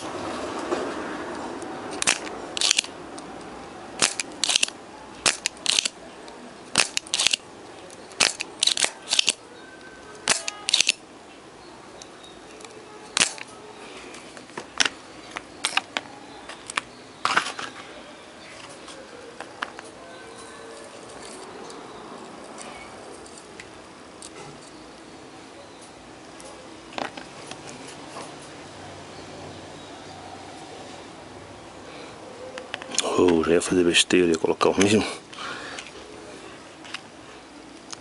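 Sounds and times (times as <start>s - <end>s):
sharp clicks: 2.0s - 3.3s, 4.0s - 6.0s, 6.7s - 9.4s, 10.1s - 11.0s.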